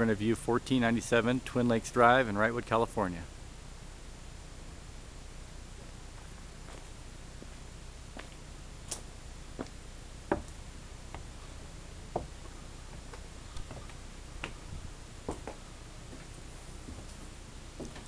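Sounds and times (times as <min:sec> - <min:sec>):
faint low rumble: 0:00.0 - 0:18.0
footsteps on wooden deck: 0:06.2 - 0:07.6, 0:08.2 - 0:18.0.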